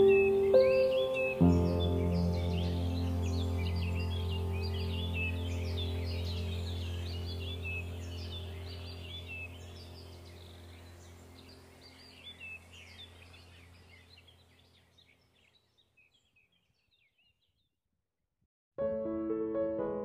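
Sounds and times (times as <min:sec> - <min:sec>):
small birds chirping: 0:00.0 - 0:17.8
steady low hum: 0:01.6 - 0:14.7.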